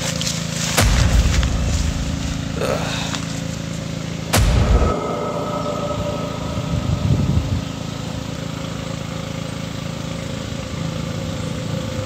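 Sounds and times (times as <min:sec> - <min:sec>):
low rumble: 0:00.7 - 0:09.5
outboard motor idling: 0:07.7 - 0:12.0.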